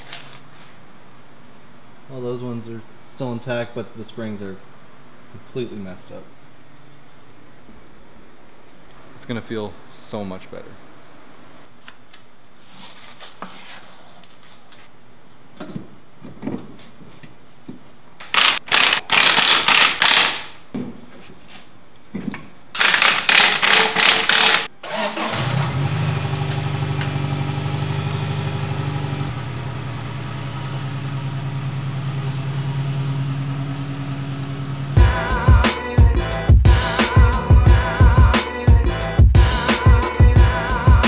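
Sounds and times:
impact wrench hammering: 0:22.8 - 0:24.7
truck engine starting and idling: 0:24.8 - 0:35.0.

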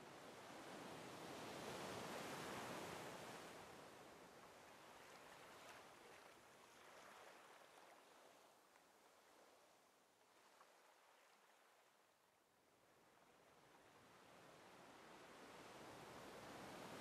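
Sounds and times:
small waves washing on beach: 0:00.2 - 0:11.9.

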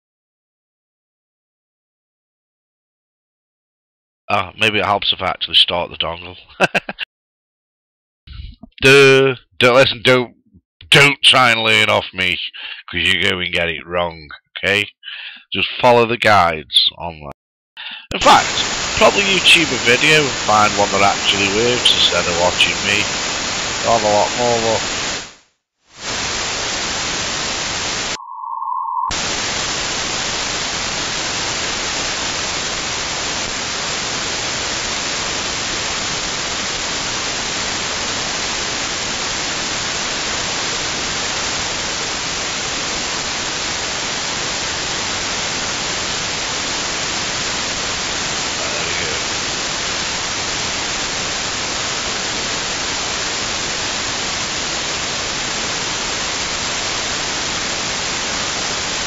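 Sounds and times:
radio static hiss: 0:11.7 - 0:13.2, 0:14.6 - 0:15.6, 0:17.8 - 0:25.4, 0:26.0 - 0:28.2, 0:29.1 - 0:59.0
short tone: 0:28.2 - 0:29.2.

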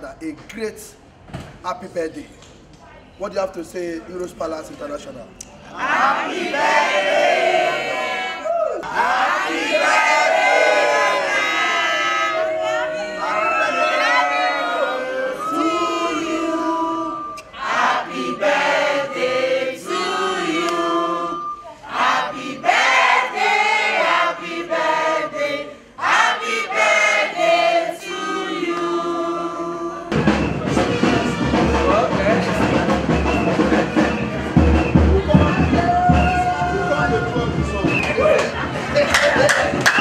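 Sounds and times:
crowd singing in chorus: 0:05.7 - 0:34.6.

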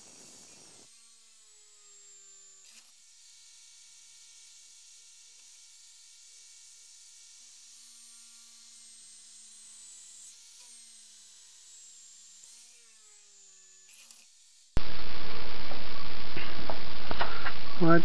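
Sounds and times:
electric drill whining: 0:00.0 - 0:03.0, 0:07.6 - 0:14.6.

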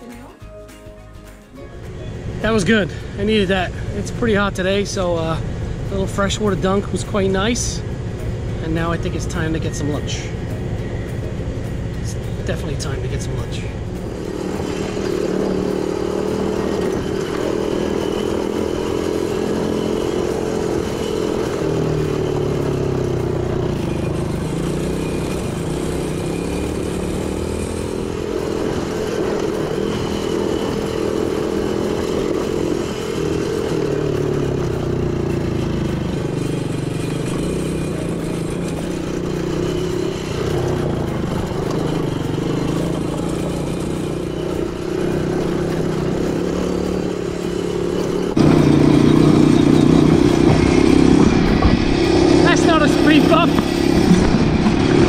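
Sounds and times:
quad bike engine revving: 0:11.9 - 0:55.0.

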